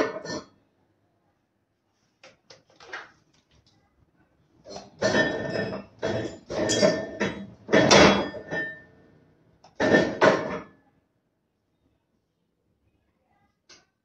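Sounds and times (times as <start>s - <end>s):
metal clattering and scraping: 4.7s - 9.0s, 9.8s - 10.7s
faint metallic ringing: 5.0s - 9.2s.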